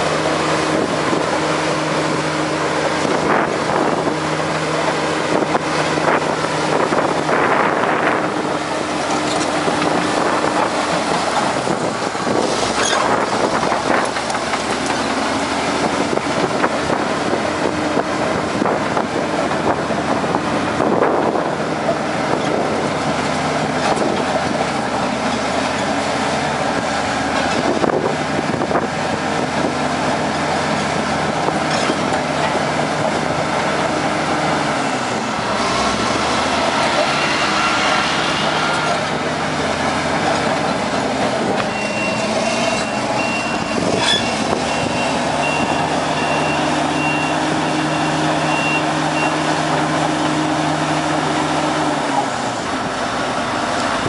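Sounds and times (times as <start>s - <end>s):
bulldozer diesel engine running: 0.0s - 54.0s
reversing alarm beeping: 41.7s - 49.5s.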